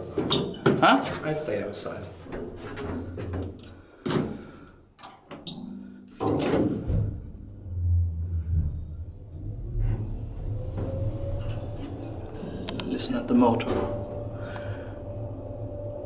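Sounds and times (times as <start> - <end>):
elevator door banging shut: 5.6 - 7.7, 10.6 - 14.3
elevator motor humming: 6.8 - 16.0.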